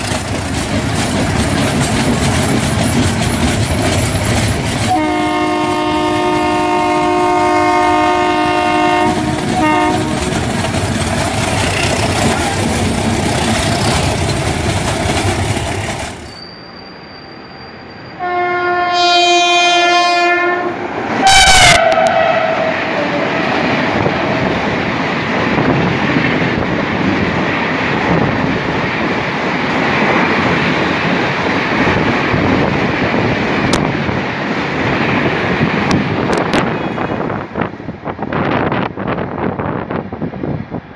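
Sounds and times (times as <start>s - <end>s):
wheels clattering on rail: 0.0s - 16.6s, 21.0s - 40.0s
locomotive rushing past: 0.0s - 40.9s
train rail noise: 0.0s - 40.9s
locomotive horn blast: 4.9s - 10.3s, 18.2s - 23.5s, 36.5s - 37.4s.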